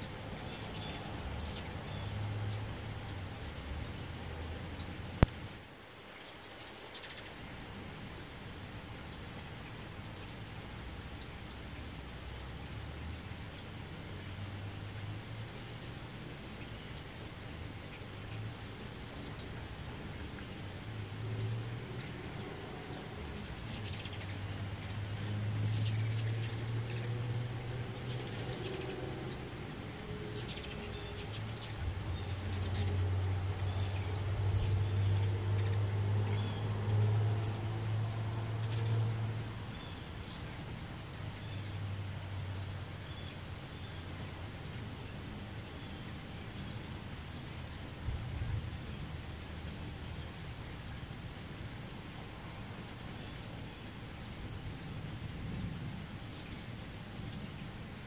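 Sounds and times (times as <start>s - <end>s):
light rain patter: 0.0s - 58.0s
hummingbird wings buzzing: 0.4s - 4.1s, 18.7s - 40.8s.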